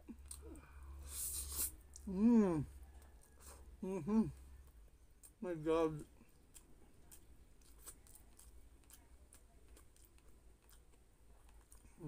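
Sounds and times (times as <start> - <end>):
chewing clicks: 6.0 - 12.0.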